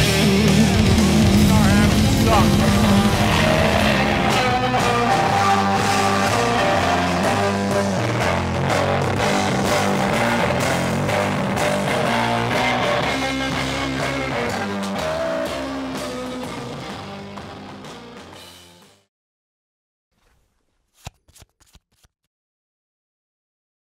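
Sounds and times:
bass guitar: 0:00.0 - 0:19.0
distorted electric guitar: 0:00.0 - 0:19.0
drums: 0:00.0 - 0:19.0.

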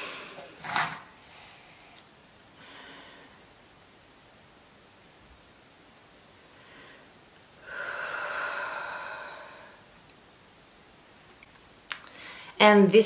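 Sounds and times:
woman breathing heavily: 0:01.2 - 0:03.5, 0:06.4 - 0:09.9, 0:12.1 - 0:12.6.

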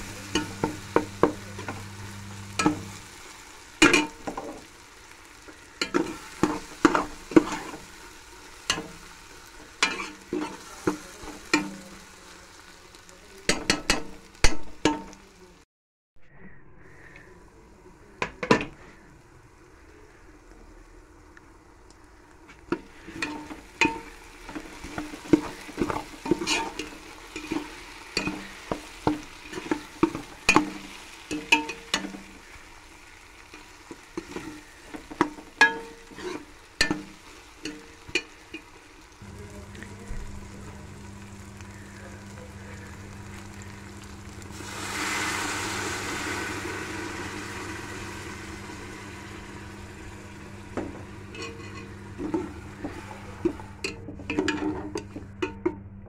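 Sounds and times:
steady low hum: 0:00.0 - 0:03.3, 0:39.2 - 0:45.0, 0:45.6 - 0:56.0
liquid sizzling in hot pot: 0:00.0 - 0:15.6, 0:16.9 - 0:55.7
metal ladle scraping pot: 0:09.8 - 0:10.6, 0:22.8 - 0:28.8, 0:34.2 - 0:38.3, 0:46.1 - 0:55.8.

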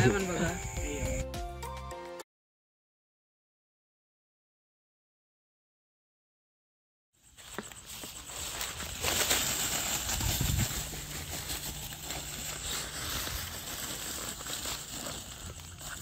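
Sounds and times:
footsteps crackling over dry leaves: 0:07.2 - 0:16.0.

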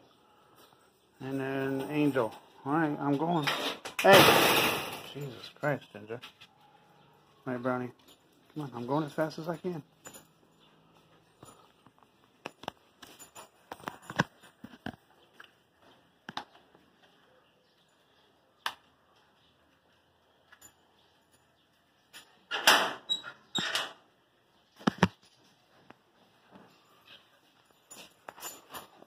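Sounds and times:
loud clattering: 0:03.6 - 0:05.2.

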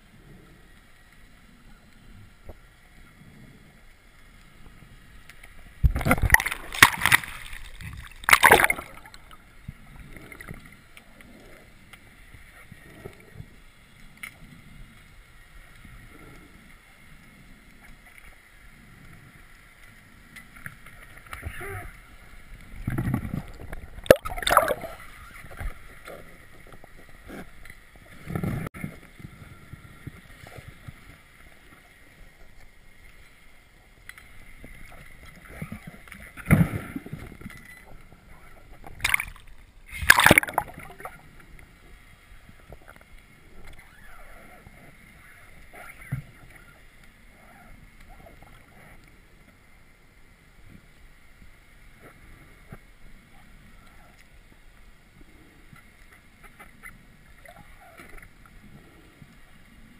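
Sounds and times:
bubbling rushes: 0:05.8 - 0:09.4, 0:23.2 - 0:25.2, 0:39.0 - 0:41.2
splash into water: 0:06.0 - 0:09.2, 0:24.0 - 0:25.0, 0:39.0 - 0:39.4, 0:40.0 - 0:41.1.

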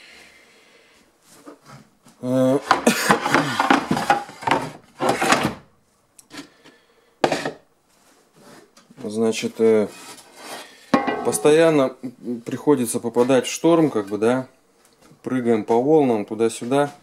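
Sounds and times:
panels scraping and rubbing: 0:07.2 - 0:08.8, 0:09.6 - 0:11.8.

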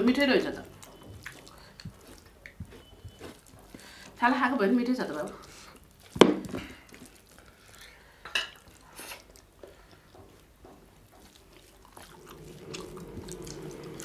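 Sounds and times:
fingers mixing food on steel plates: 0:00.0 - 0:14.0
wet mouth smacks and chewing: 0:00.7 - 0:04.2, 0:05.0 - 0:07.9, 0:11.1 - 0:14.0
low hum: 0:12.1 - 0:14.0.

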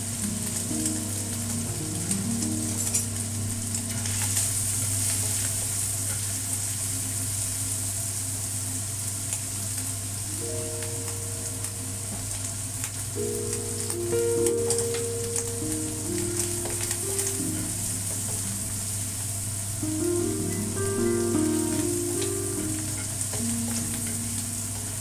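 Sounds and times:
food sizzling in hot oil: 0:00.0 - 0:25.0.

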